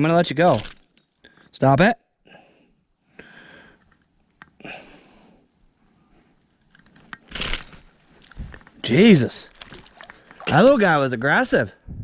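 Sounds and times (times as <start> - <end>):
faint breathing: 1.2 - 1.6, 2.2 - 4.0, 4.6 - 6.7
hand-handling sounds: 6.6 - 11.4
fish thrashing rustle: 9.4 - 10.8.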